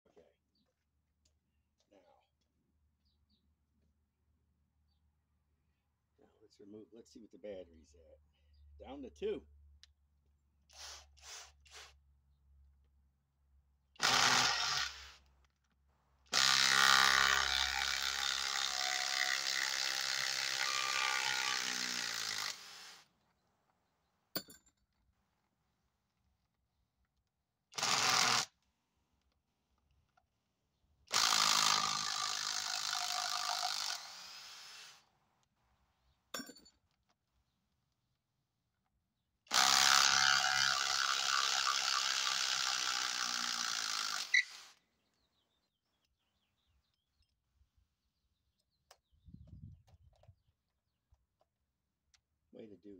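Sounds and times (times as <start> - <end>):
impact driver driving screws into wood: 14.0 - 15.3, 16.3 - 23.0, 27.8 - 28.6, 31.1 - 35.0, 39.5 - 44.8.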